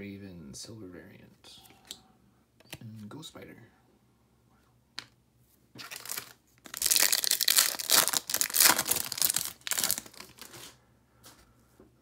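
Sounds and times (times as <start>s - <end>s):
wrapper crinkling and tearing: 5.8s - 10.7s.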